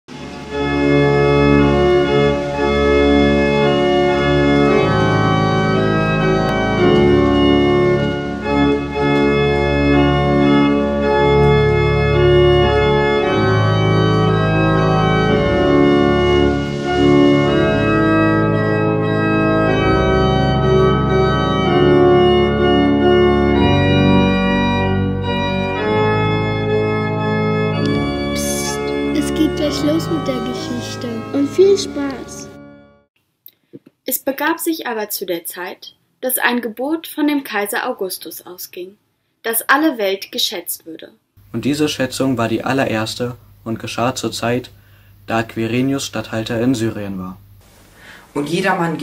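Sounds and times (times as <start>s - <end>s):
church organ chords: 0.1s - 33.1s, 41.4s - 47.6s.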